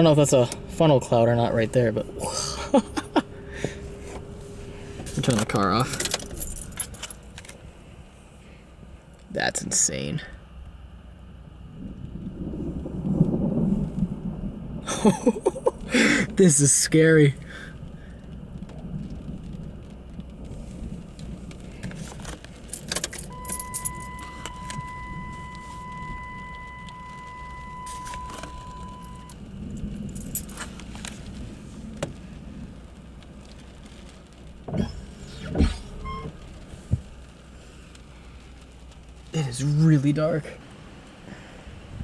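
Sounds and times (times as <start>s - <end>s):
low rumble: 0.0s - 9.2s, 10.2s - 16.5s, 17.3s - 39.4s
keys jangling and clicking: 5.9s - 7.6s, 22.7s - 24.8s, 30.1s - 30.7s
car electronic warning tone: 23.3s - 29.4s, 34.7s - 36.4s.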